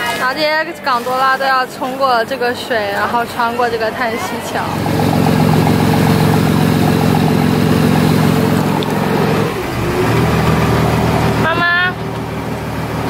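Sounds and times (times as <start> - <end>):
motorboat engine hum: 2.1 - 13.0
water rushing past hull: 4.2 - 13.0.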